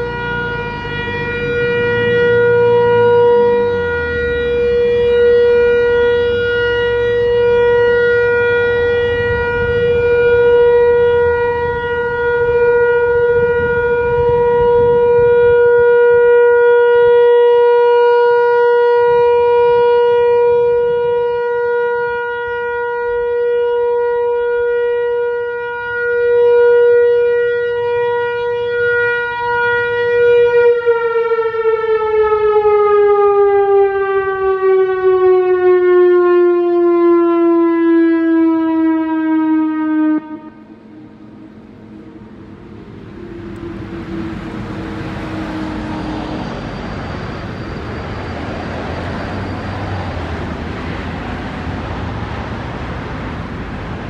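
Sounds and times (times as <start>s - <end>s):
single-tone electronic siren: 0.0s - 54.0s.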